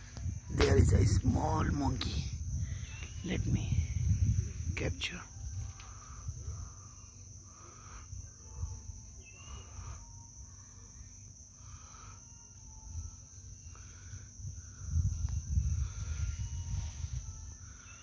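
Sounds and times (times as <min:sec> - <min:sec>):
low microphone rumble: 0:00.0 - 0:10.8, 0:13.9 - 0:17.8
high-pitched insect drone: 0:00.0 - 0:18.0.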